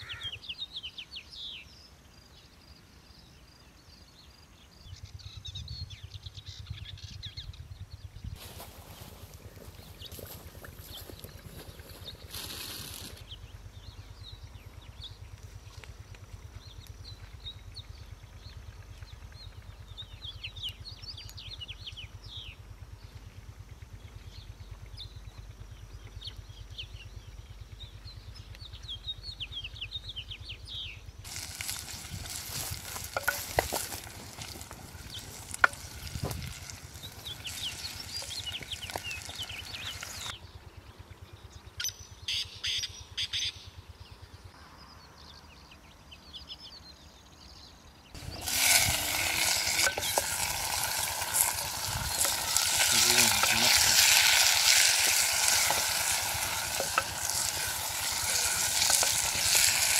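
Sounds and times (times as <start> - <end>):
small birds chirping: 0.0 - 59.9
food frying in hot oil: 31.2 - 40.3, 48.2 - 59.9.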